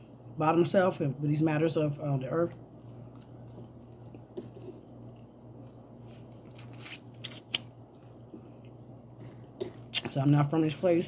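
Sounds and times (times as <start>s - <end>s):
low steady hum: 0.0s - 11.0s
food crackling and clicking: 2.5s - 10.2s.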